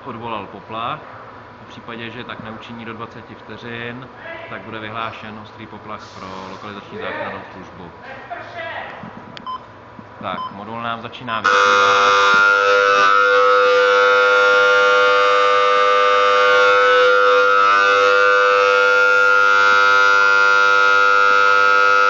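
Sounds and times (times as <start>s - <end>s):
steady alarm tone: 11.4s - 22.0s.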